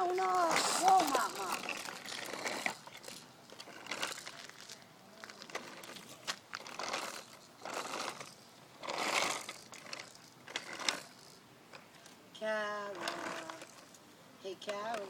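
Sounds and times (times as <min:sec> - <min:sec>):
plastic wheels rattling on asphalt: 0:00.0 - 0:15.0.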